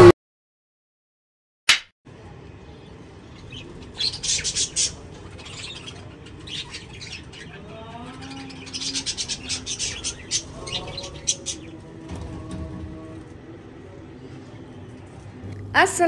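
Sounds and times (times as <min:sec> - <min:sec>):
budgerigars chirping: 0:03.2 - 0:11.8.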